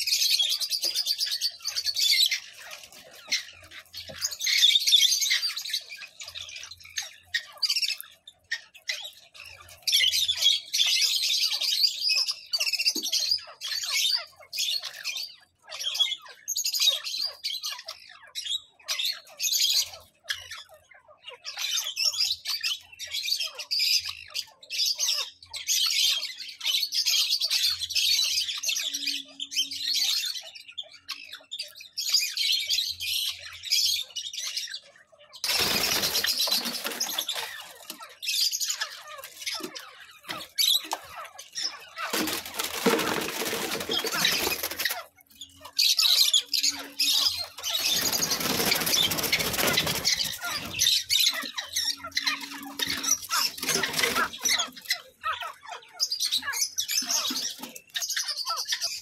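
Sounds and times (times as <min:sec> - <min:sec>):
francolins calling: 0:00.0 - 0:59.0.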